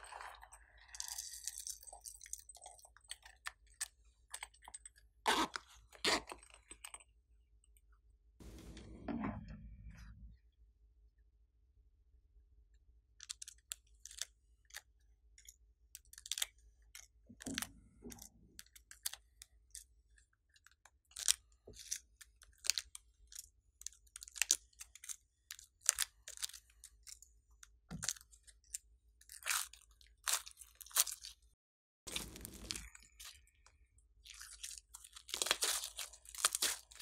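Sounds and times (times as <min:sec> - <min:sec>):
plastic sequins crackling: 0:32.1 - 0:33.3.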